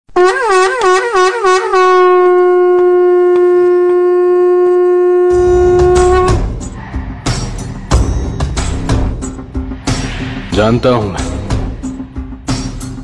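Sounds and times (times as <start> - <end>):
conch shell blown: 0.1 - 6.7
low rumble: 5.4 - 13.0.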